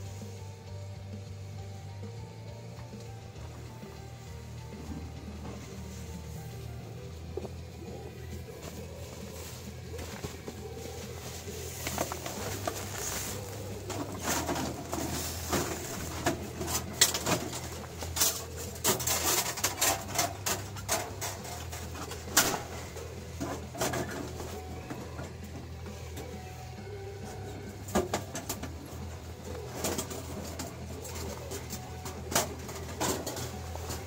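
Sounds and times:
steady low hum: 0:00.0 - 0:34.0
clicks and knocks of handling gear: 0:11.7 - 0:22.7.

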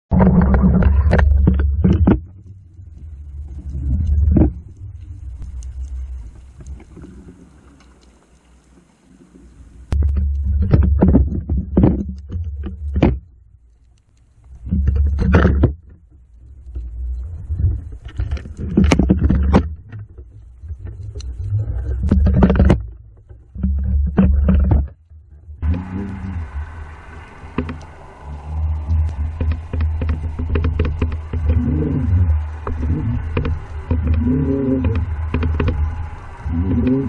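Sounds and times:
underwater rumble of moving water: 0:00.0 - 0:37.0.

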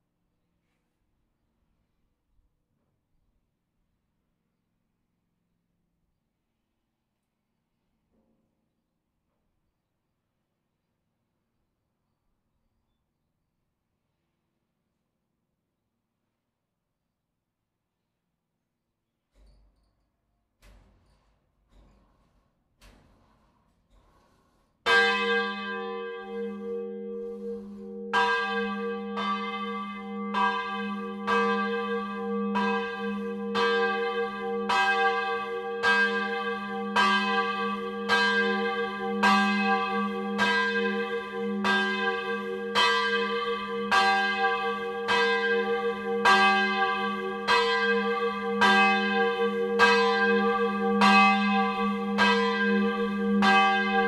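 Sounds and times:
church bell ringing: 0:24.9 - 0:54.0.

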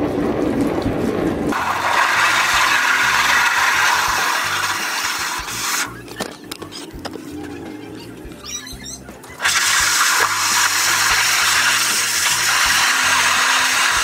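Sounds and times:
hose spraying water on mesh: 0:01.6 - 0:06.0, 0:09.4 - 0:14.0.

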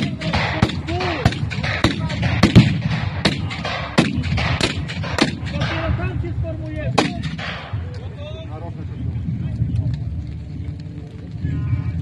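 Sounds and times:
musket shots: 0:00.0 - 0:06.0, 0:07.0 - 0:07.8.

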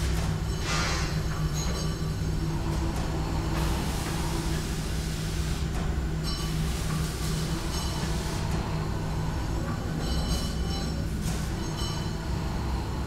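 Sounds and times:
low mechanical rumble: 0:08.4 - 0:13.0.

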